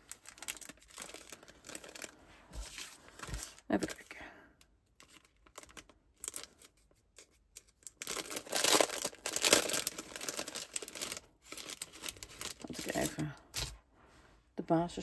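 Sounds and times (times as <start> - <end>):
plastic bag crinkling: 0.0 - 4.0, 5.0 - 6.8, 7.6 - 13.8.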